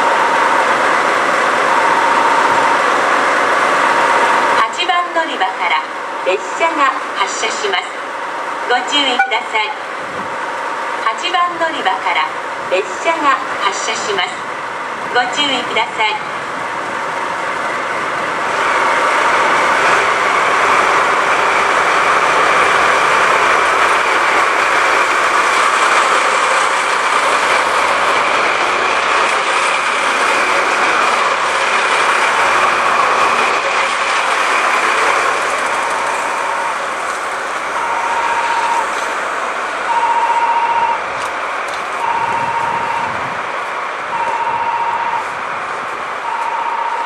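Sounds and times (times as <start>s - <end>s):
diesel locomotive engines running: 0.0s - 47.0s
electronic beep: 9.1s - 9.5s, 37.8s - 38.8s.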